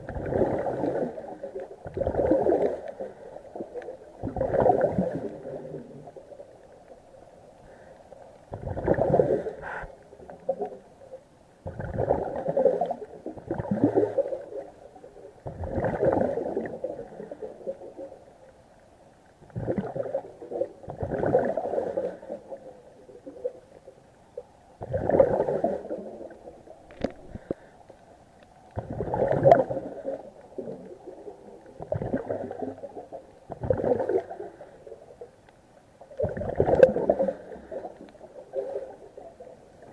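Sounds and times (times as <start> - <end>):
exhaust bubbles bubbling: 0.0 - 6.2, 8.5 - 9.5, 11.6 - 14.7, 15.5 - 17.5, 24.8 - 26.5, 28.8 - 34.5, 36.2 - 39.1
scuba diver breathing: 7.6 - 8.3, 9.0 - 10.0, 27.0 - 28.1, 37.0 - 39.0.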